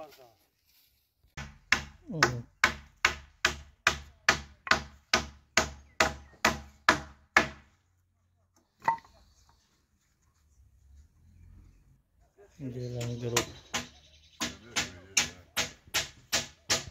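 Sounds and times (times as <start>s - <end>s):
hammer striking wooden boards: 1.4s - 7.7s, 13.0s - 16.9s.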